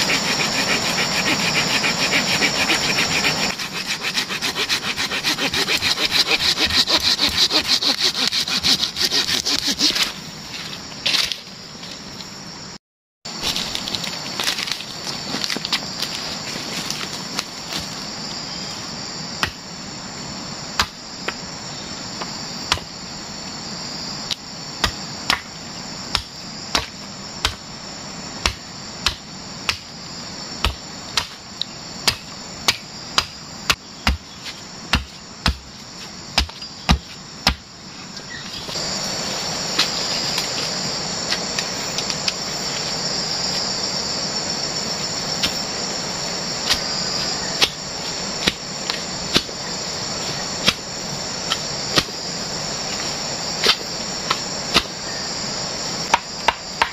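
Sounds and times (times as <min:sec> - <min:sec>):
hand blade chopping wood: 0:00.0 - 0:10.1, 0:32.0 - 0:35.7, 0:36.4 - 0:37.6
insect chorus: 0:00.0 - 0:56.9.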